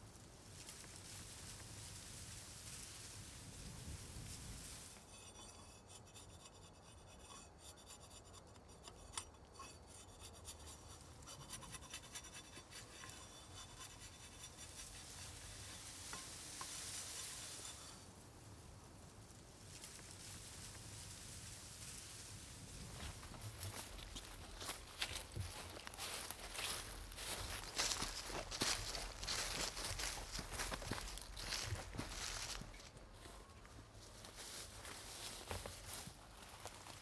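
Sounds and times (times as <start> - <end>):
knife scraping wooden stick: 4.9 - 18.0.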